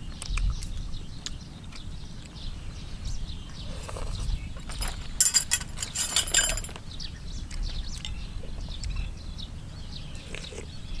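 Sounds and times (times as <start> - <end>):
eating noises: 0.0 - 2.5, 3.5 - 4.5, 10.1 - 11.0
small birds chirping: 0.0 - 11.0.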